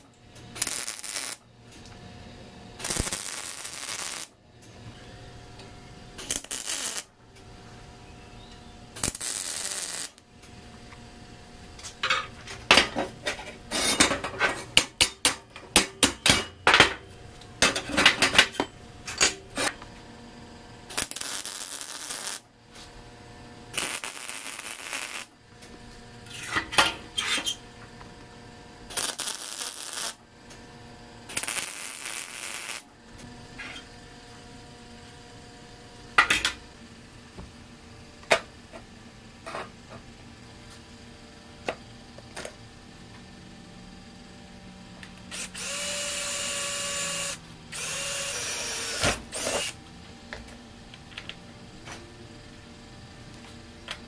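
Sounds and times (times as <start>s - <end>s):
welder crackling hiss: 0.0s - 1.4s, 2.8s - 4.4s, 6.2s - 7.1s, 9.0s - 10.2s, 20.9s - 22.5s, 23.7s - 25.4s, 28.9s - 30.2s, 31.3s - 32.9s, 45.4s - 49.8s.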